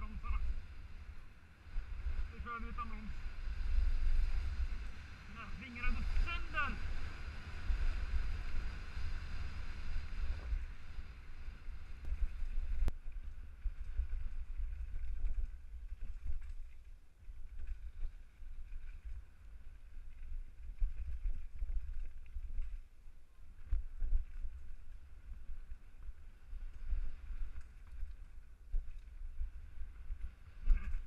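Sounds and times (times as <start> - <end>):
wind buffeting microphone: 0.0 - 22.9
bike tyre rumble: 0.0 - 31.0.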